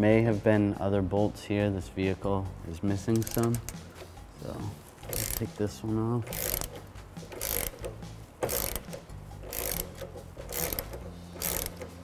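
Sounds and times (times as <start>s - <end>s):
hand ratchet clicking: 3.1s - 4.2s, 5.0s - 12.0s.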